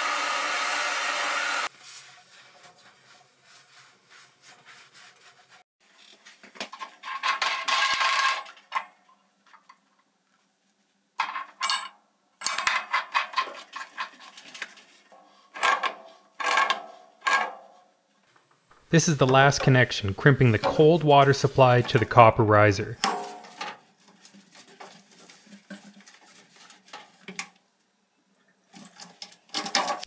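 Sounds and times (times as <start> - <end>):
rag rustling over pipe: 12.8 - 19.8, 23.0 - 27.6.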